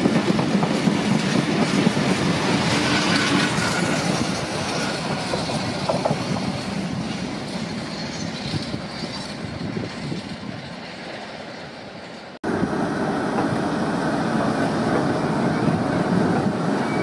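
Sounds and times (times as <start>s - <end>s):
diesel locomotive passing: 0.0s - 17.0s
freight train wheel noise: 0.0s - 17.0s.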